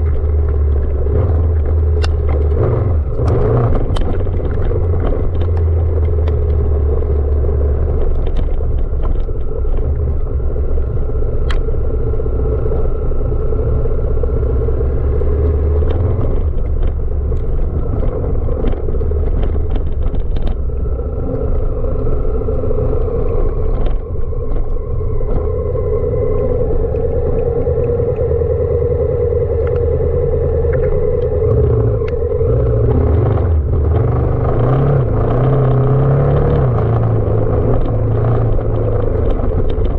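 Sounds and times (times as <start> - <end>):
sharp clicks and knocks: 0.0 - 10.1, 15.8 - 21.8
motorcycle engine running: 0.0 - 39.9.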